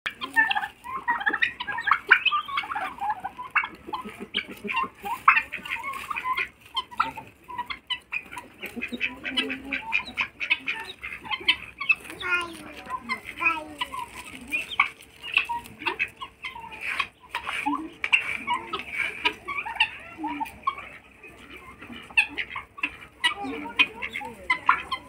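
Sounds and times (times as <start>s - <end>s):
poultry flock clucking and calling: 0.1s - 25.0s.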